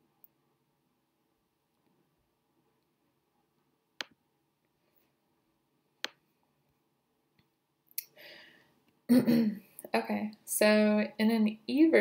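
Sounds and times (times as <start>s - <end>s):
computer mouse clicks: 4.0s - 4.2s
soft breath: 8.1s - 8.9s.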